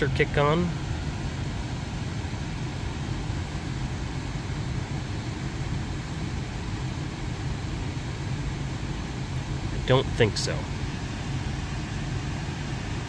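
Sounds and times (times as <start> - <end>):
car climate system hum and air noise: 0.0 - 13.0.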